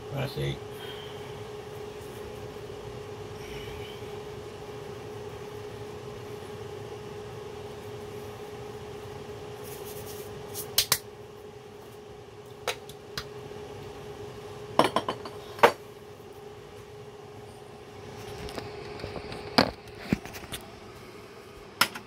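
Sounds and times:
steady hum: 0:00.0 - 0:22.0
hands clapping together: 0:10.8 - 0:11.0
crockery clinking on worktop: 0:14.8 - 0:15.8.

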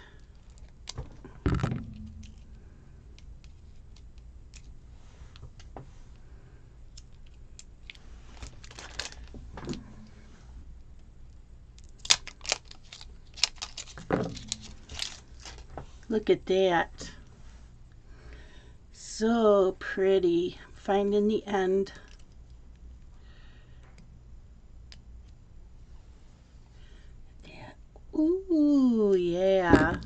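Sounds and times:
tape roll clicks and rustles: 0:00.2 - 0:02.6, 0:06.9 - 0:09.8, 0:11.8 - 0:15.8
low thump: 0:01.4 - 0:02.6.

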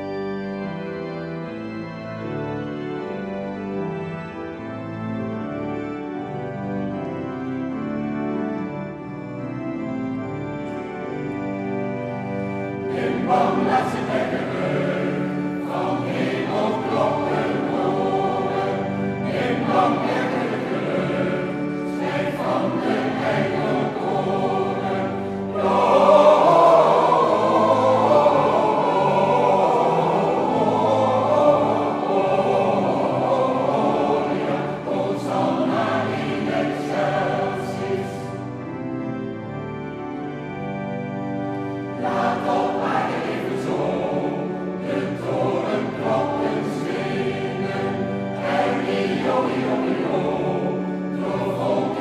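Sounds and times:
mixed choir singing: 0:12.6 - 0:38.8, 0:41.7 - 0:52.0.

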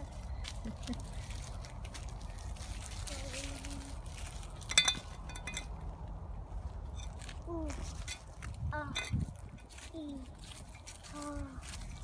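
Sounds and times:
shovel clinking against metal: 0:04.7 - 0:05.8.

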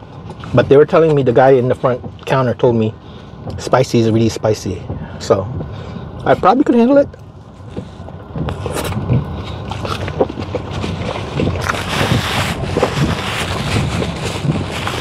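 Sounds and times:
road and tyre noise in car: 0:00.0 - 0:15.0
chewing and mouth sounds: 0:07.7 - 0:15.0.

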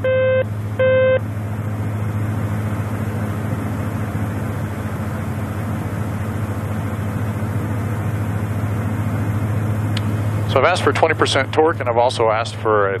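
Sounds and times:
turboprop cabin drone: 0:00.0 - 0:13.0.

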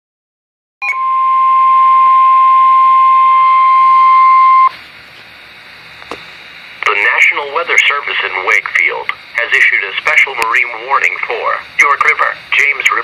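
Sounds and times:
steady loud alarm beep: 0:00.8 - 0:04.8
faint radio hiss: 0:05.1 - 0:13.0.

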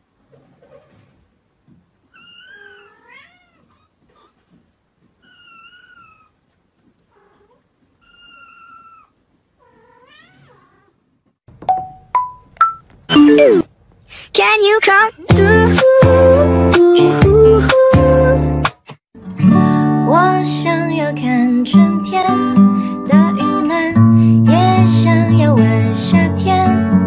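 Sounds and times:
sharp rising plinks: 0:11.6 - 0:13.7.

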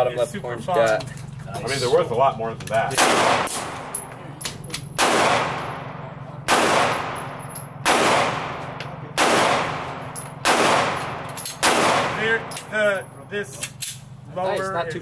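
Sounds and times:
pistol shots ringing: 0:02.9 - 0:13.0.

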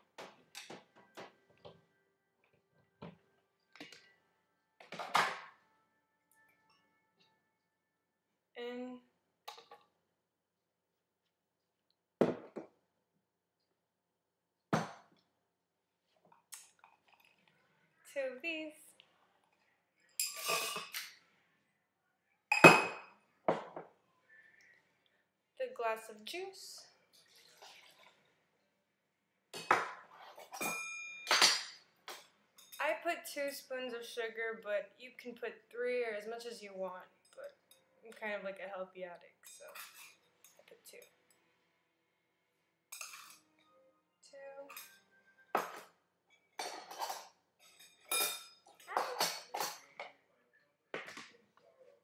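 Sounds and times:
kitchenware clinking and clattering: 0:04.8 - 0:05.6, 0:20.2 - 0:21.2, 0:22.5 - 0:24.0, 0:27.1 - 0:28.3, 0:29.5 - 0:32.8, 0:39.4 - 0:41.3, 0:42.9 - 0:43.7, 0:44.6 - 0:50.1.

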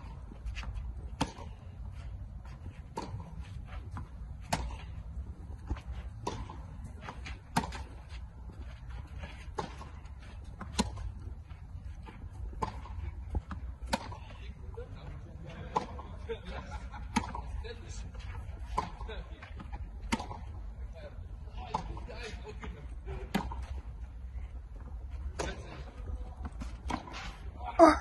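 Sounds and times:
racket hitting tennis ball: 0:00.0 - 0:01.6, 0:02.5 - 0:08.2, 0:09.3 - 0:11.1, 0:12.5 - 0:14.3, 0:20.0 - 0:20.5.

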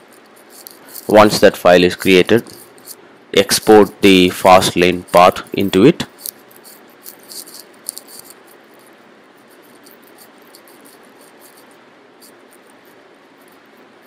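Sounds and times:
computer keyboard typing: 0:05.0 - 0:08.8.

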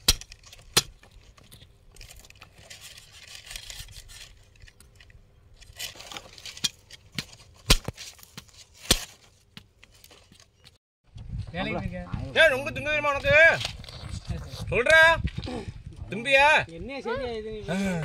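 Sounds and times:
fruit scraping and tearing: 0:00.0 - 0:09.5, 0:13.6 - 0:14.8.

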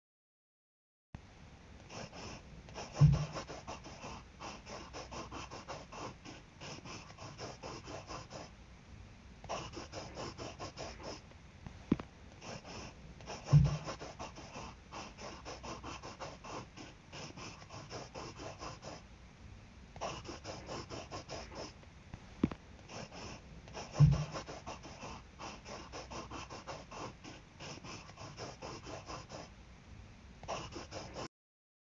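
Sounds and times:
pen scratching on paper: 0:01.9 - 0:08.5, 0:09.5 - 0:11.2, 0:12.4 - 0:19.0, 0:20.0 - 0:21.8, 0:22.8 - 0:29.5, 0:30.4 - 0:31.3
heavier pen tap: 0:11.7 - 0:12.1, 0:22.4 - 0:22.6.

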